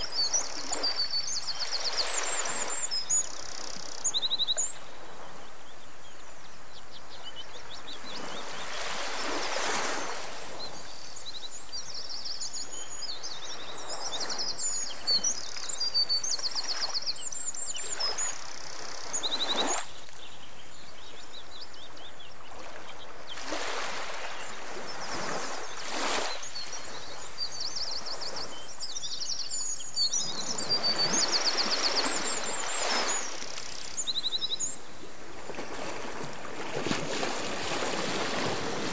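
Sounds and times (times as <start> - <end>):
birds chirping and trilling: 24.2 - 34.9.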